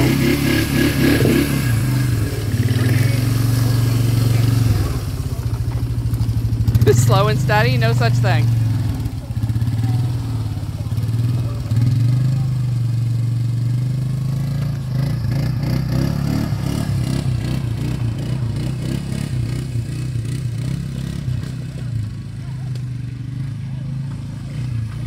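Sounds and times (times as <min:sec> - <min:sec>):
water splashing: 0:00.0 - 0:11.9
quad bike engine running: 0:00.0 - 0:25.0.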